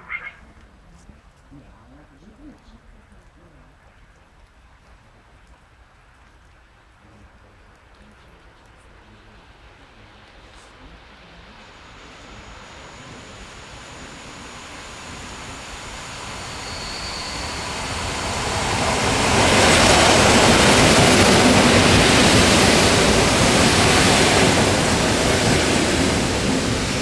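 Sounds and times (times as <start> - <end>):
electric train passing on rails: 8.4 - 27.0.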